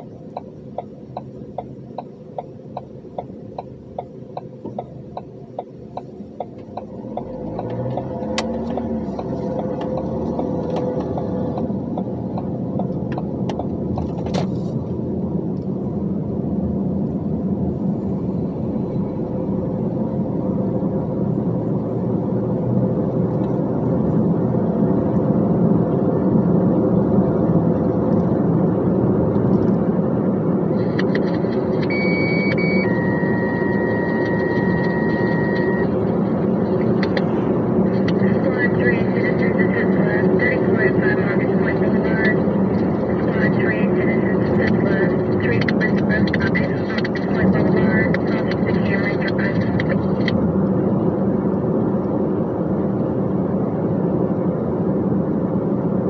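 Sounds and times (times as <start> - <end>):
turn signal clicking: 0.0 - 14.5, 30.8 - 37.3
diesel truck engine: 0.0 - 56.0.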